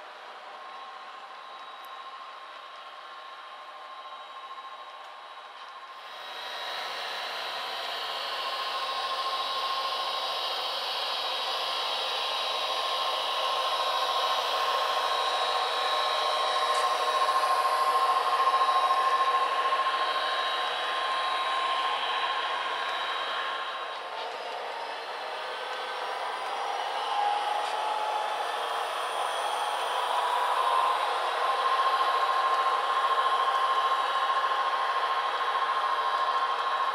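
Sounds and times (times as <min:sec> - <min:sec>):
model train running on track: 0:00.0 - 0:36.9.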